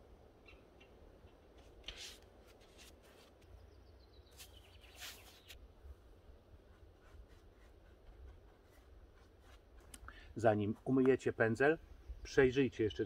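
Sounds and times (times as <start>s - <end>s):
paintbrush scratching on wood: 6.5s - 11.4s.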